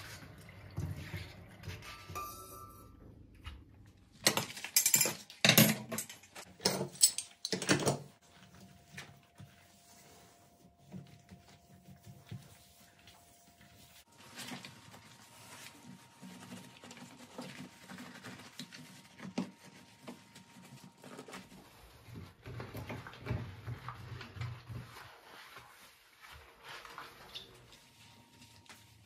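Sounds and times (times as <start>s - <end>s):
sponge scrubbing glass hob: 8.1s - 29.0s
cloth wiping: 8.3s - 22.2s, 23.8s - 29.0s.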